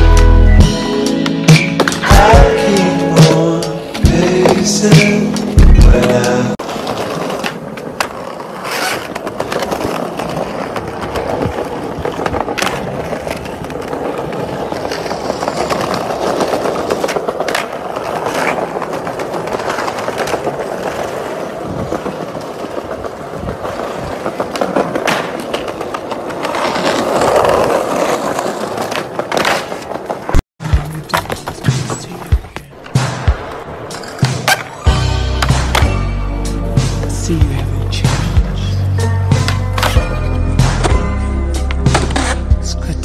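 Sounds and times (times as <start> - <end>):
skateboard clacks: 1.5 - 35.9
skateboard wheels rolling on tiles: 1.5 - 36.0, 38.2 - 41.0.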